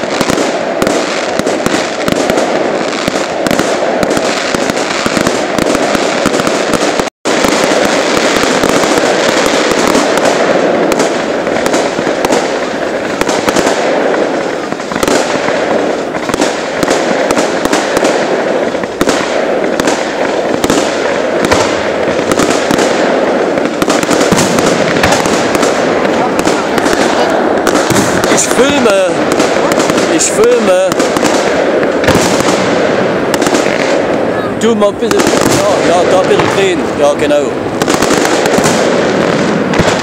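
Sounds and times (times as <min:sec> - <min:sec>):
fireworks popping and banging: 0:00.0 - 0:40.0.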